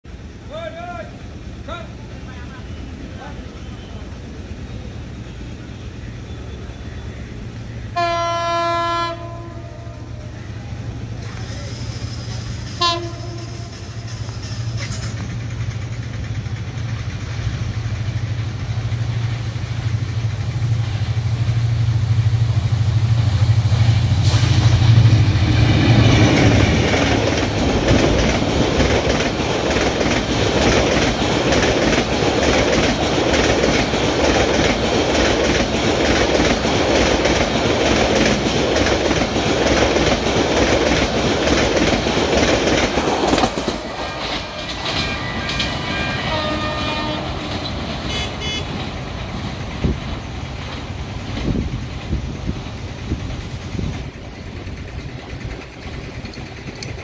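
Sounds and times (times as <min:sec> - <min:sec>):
diesel locomotive engine drone: 0:00.0 - 0:57.0
train coaches rushing past: 0:00.1 - 0:57.0
train horn toot: 0:07.9 - 0:10.3, 0:12.8 - 0:14.0, 0:44.9 - 0:48.8
wheels clattering over rail joints: 0:10.7 - 0:20.2, 0:24.7 - 0:57.0.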